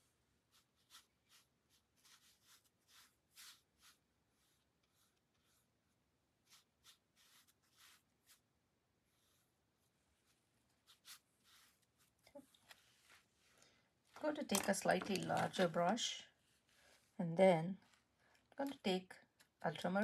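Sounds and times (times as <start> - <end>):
brush swishing on paper: 0.0 - 14.2.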